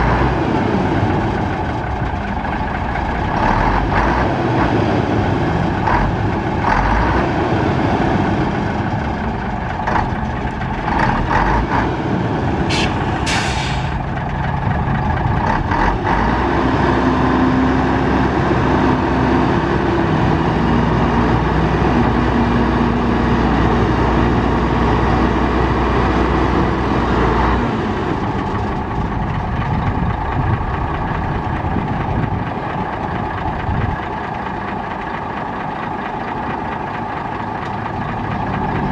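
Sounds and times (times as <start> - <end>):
diesel truck engine running: 0.0 - 38.9
air hiss: 12.7 - 14.0.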